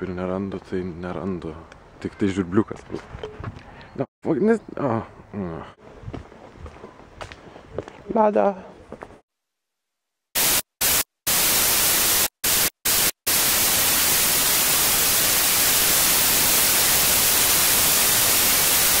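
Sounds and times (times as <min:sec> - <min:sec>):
tv static hiss: 0:10.4 - 0:19.0.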